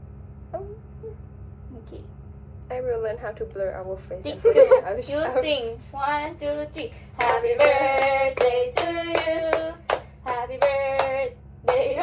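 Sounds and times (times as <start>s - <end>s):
women singing together: 5.1s - 12.0s
hand claps: 7.2s - 12.0s.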